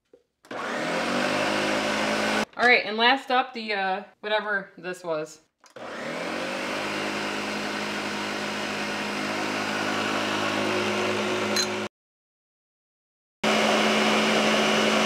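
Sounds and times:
blender motor running: 0.5 - 2.5, 5.7 - 11.9, 13.4 - 15.0.

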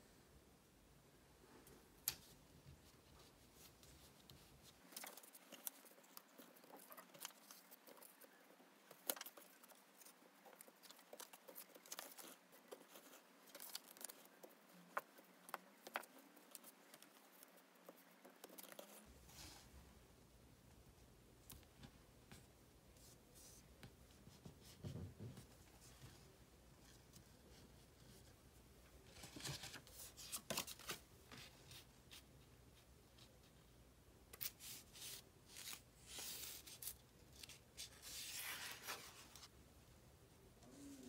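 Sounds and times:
paper rustling: 2.1 - 19.0, 29.1 - 32.2, 34.4 - 39.5.

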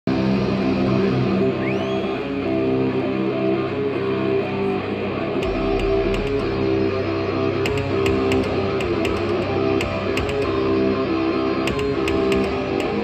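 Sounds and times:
electric guitar riff: 0.1 - 13.0
drum and cymbal hits: 5.4 - 10.7, 11.7 - 13.0
deep bass: 5.4 - 11.9.

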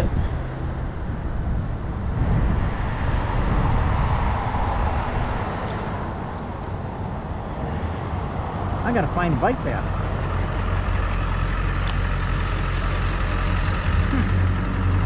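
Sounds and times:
wind on microphone: 0.0 - 8.8
passing vehicle: 0.0 - 15.0.

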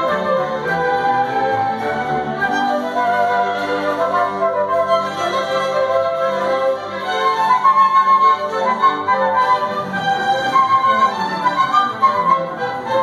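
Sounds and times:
flutes playing held notes: 0.0 - 13.0
orchestral strings: 0.0 - 13.0.

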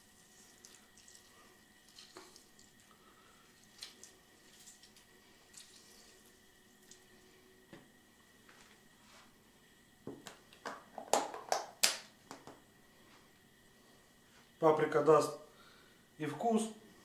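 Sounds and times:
juice dripping into bowl: 0.1 - 7.3.

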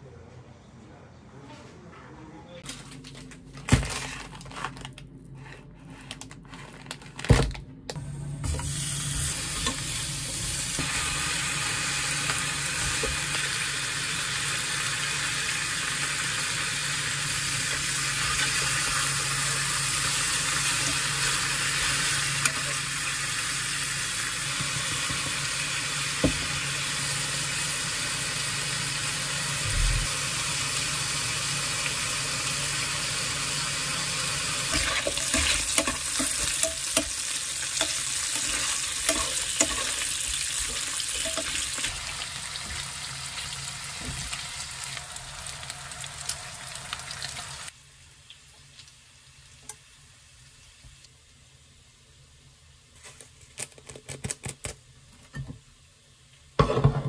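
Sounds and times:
meat sizzling in a frying pan: 8.6 - 51.0.

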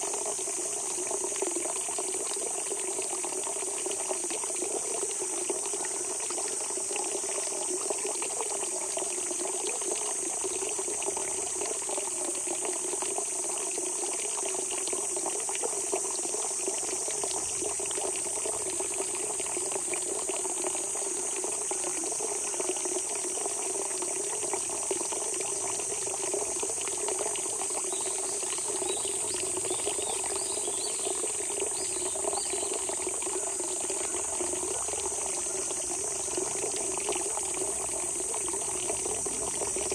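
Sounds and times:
insect drone: 0.0 - 39.9
spring water gushing: 0.0 - 39.9
faint chirps: 27.7 - 36.6.

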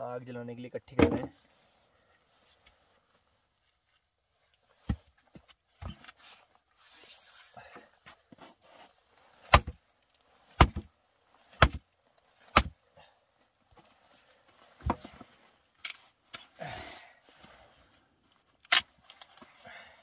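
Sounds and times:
hatchet chopping wood: 9.5 - 9.8, 10.6 - 10.9, 11.6 - 11.8, 12.5 - 12.7.

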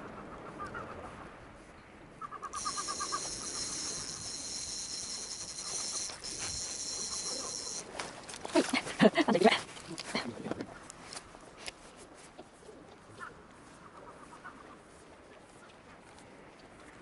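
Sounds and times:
short high chirps: 2.6 - 7.8
steady high-pitched whine: 2.6 - 8.0.

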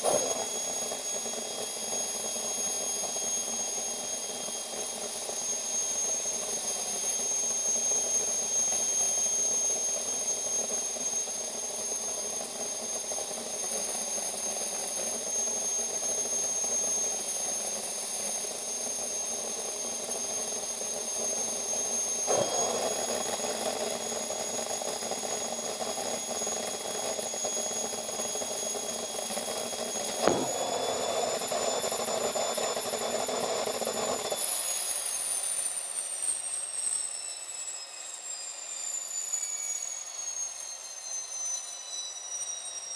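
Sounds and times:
jet engine whining: 0.0 - 36.7
sharp click: 30.2 - 30.6.

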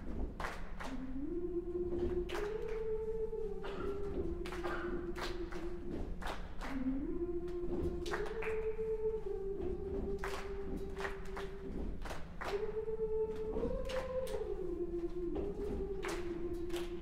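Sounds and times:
body percussion thumps: 0.0 - 0.8, 3.8 - 6.6, 9.6 - 12.6
hand claps: 0.0 - 1.3, 2.0 - 17.0
women's choir singing: 0.8 - 17.0.

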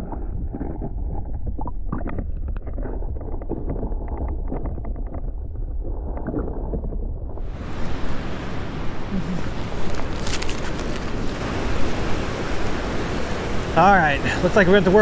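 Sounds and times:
small underwater clicks: 0.0 - 7.0
underwater stream rumble: 0.0 - 15.0.

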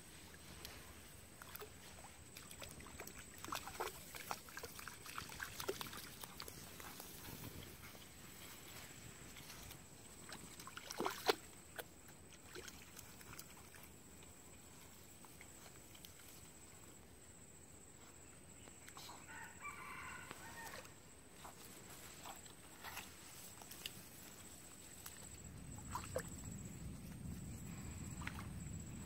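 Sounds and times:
rooster crowing faintly: 19.0 - 21.0.

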